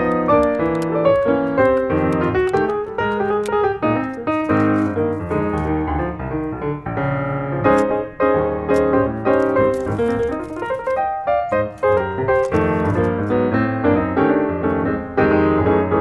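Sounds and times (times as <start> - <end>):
background piano music: 0.0 - 16.0.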